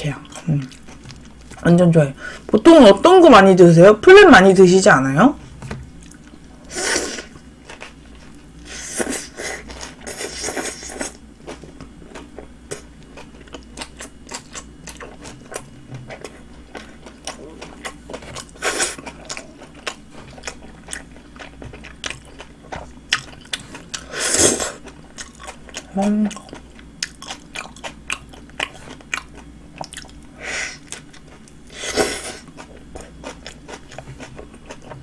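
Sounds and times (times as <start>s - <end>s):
chewing with wet mouth clicks: 11.4s - 24.1s, 24.8s - 31.7s, 32.4s - 35.0s.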